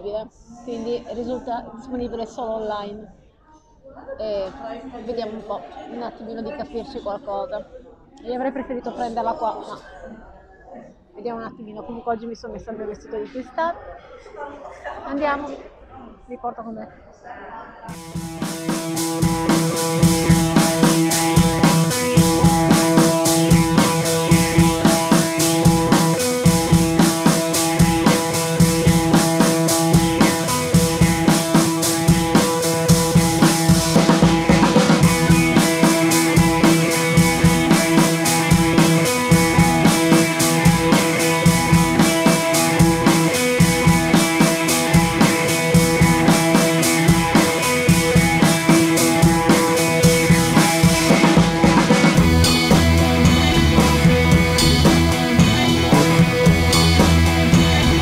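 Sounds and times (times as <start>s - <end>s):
drum beat music: 17.9s - 58.0s
sustained notes: 17.9s - 58.0s.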